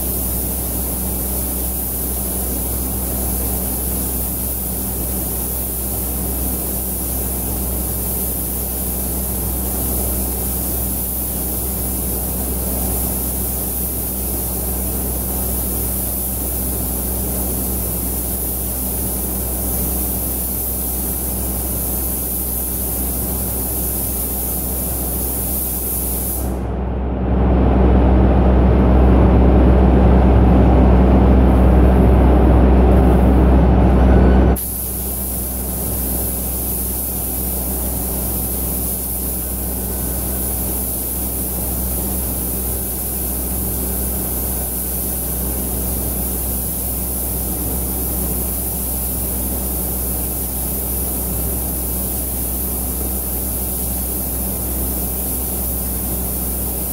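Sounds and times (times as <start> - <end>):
spray gun hissing: 0.0 - 26.6, 34.6 - 56.9
ventilation air rush: 0.0 - 56.9
low rumble: 26.5 - 34.6.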